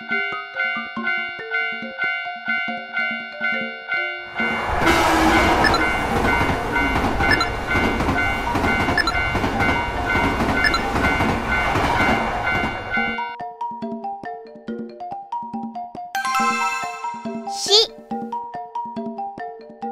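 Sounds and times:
crossing warning bell ringing: 0:00.6 - 0:13.4
train wheels clickety-clack: 0:04.8 - 0:13.2.

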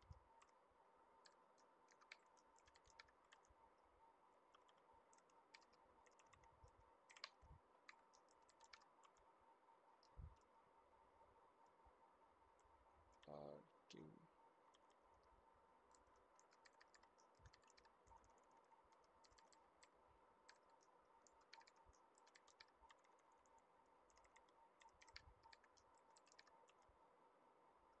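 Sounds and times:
computer keyboard typing: 0:00.0 - 0:00.6, 0:01.2 - 0:03.6, 0:04.5 - 0:09.2, 0:14.7 - 0:15.3, 0:15.9 - 0:26.9
faint steady hum: 0:00.0 - 0:28.0.

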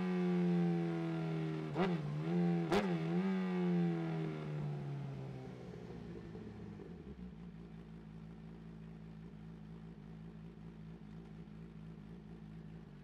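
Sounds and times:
motorcycle engine idling: 0:05.8 - 0:13.0.

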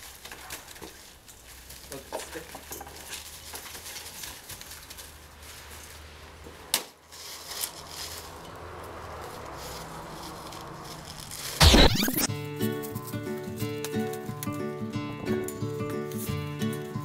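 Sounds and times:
loud burst of noise: 0:11.6 - 0:12.3.

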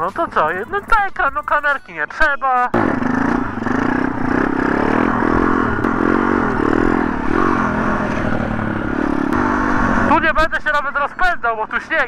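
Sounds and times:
motorbike engine revving: 0:02.8 - 0:10.5.

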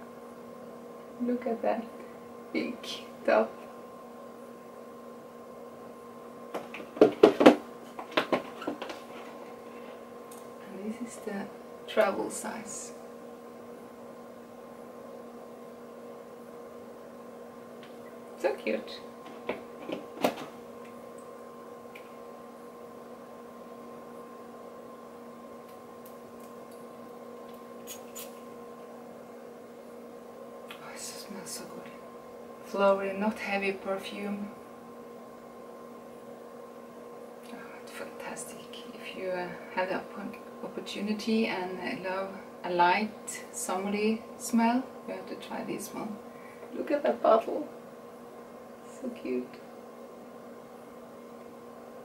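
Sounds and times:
electrical hum: 0:00.0 - 0:52.0
faint hiss: 0:27.8 - 0:28.5.

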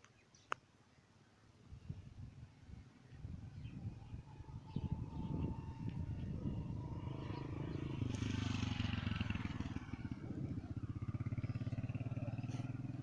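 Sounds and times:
motorcycle engine passing: 0:03.0 - 0:13.0.

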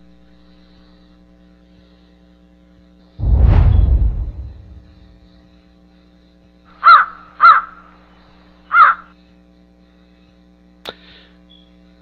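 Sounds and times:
steady low hum: 0:03.2 - 0:05.5.

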